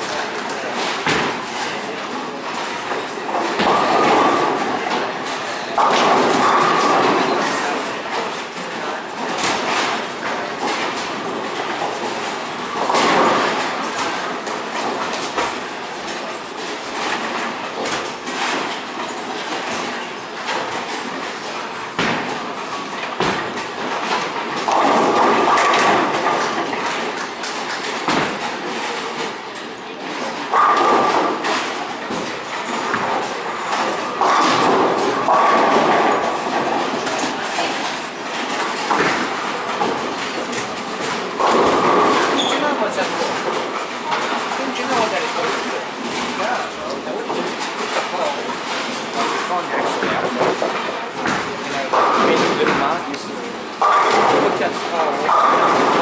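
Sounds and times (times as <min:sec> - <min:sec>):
bowling balls rolling: 0:00.0 - 0:56.0
bowling ball rolling: 0:30.2 - 0:44.6, 0:53.5 - 0:56.0.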